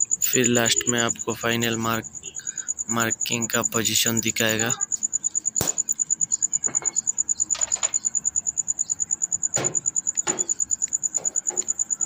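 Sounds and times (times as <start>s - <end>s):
high-pitched pulsing chirp: 0.2s - 11.1s.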